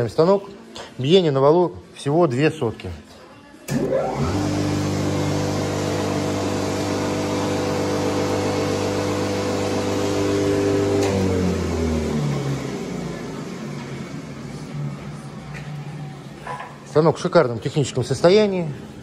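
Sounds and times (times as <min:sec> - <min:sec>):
spindle moulder motor humming: 0:03.7 - 0:14.5.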